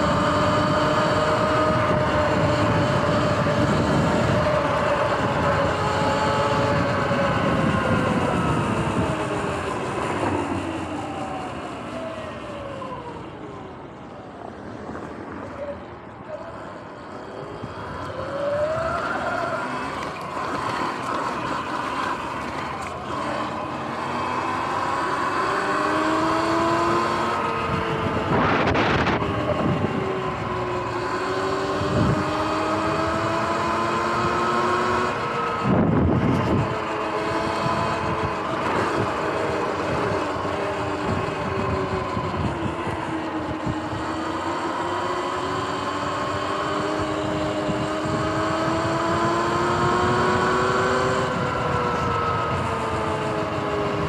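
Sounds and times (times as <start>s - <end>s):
wind on microphone: 0.0s - 11.4s, 24.2s - 54.0s
electric motor whine: 0.0s - 12.4s, 16.8s - 54.0s.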